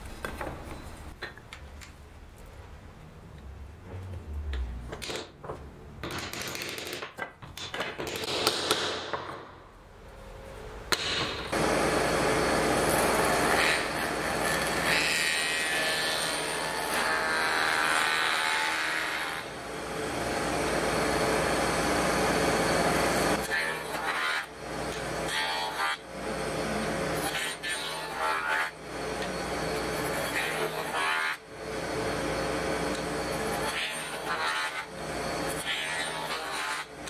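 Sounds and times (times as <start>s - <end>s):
wood pieces knocking and clicking: 4.9s - 9.5s.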